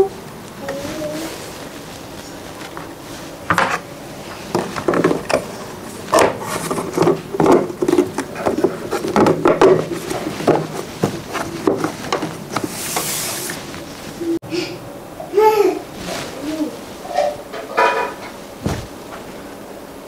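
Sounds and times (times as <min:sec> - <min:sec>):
lid knocking and rubbing: 0:06.2 - 0:13.5.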